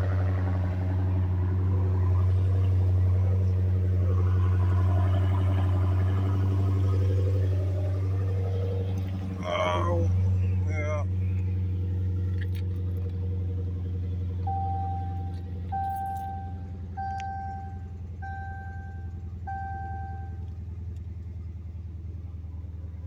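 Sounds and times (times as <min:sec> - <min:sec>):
car engine idling: 0:00.0 - 0:23.0
dashboard warning chime: 0:14.4 - 0:20.5.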